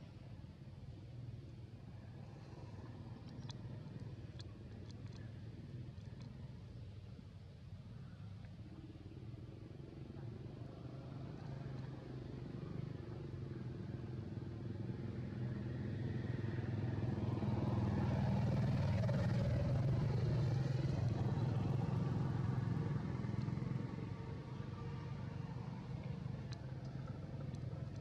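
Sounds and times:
vehicle engine running: 17.5 - 28.0.

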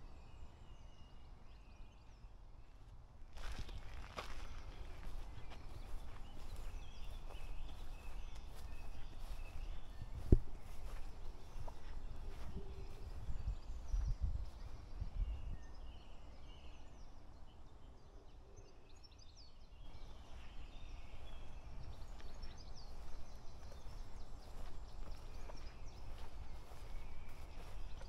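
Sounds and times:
birds chirping: 0.0 - 28.0
steady outdoor hiss: 0.0 - 28.0
footsteps on a path: 2.9 - 15.3, 19.9 - 28.0.

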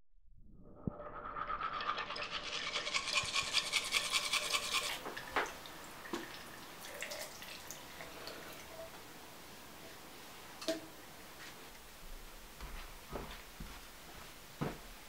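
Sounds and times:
toothbrush scrubbing teeth: 1.8 - 5.0.

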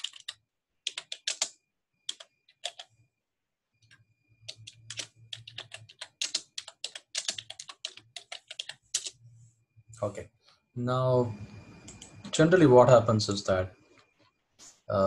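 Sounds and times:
typing on computer keyboard: 0.0 - 2.9, 3.8 - 9.2.

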